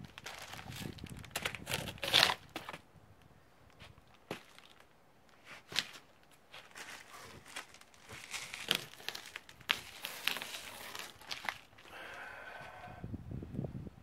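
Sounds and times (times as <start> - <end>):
snow and ice scraping on steps: 5.4 - 12.0.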